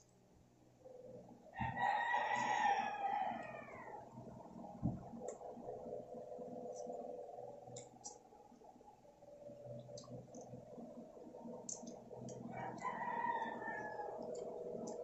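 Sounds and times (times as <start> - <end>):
faint steady hum: 0.0 - 15.0
rooster crowing: 1.5 - 4.0, 12.4 - 15.0.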